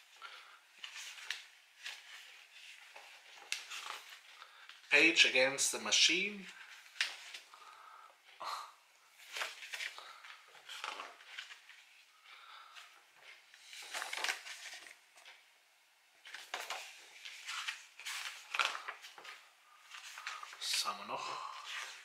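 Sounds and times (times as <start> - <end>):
paper and packaging rustling: 0.4 - 5.1, 9.2 - 12.0, 12.7 - 15.4, 16.2 - 22.0.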